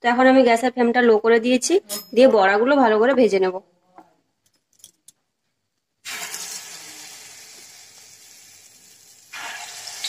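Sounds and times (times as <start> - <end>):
fritters sizzling in hot oil: 6.0 - 10.0.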